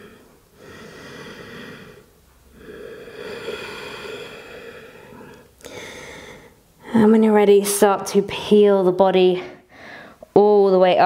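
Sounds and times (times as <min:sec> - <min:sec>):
woman breathing slowly: 0:00.0 - 0:06.8, 0:09.5 - 0:10.3.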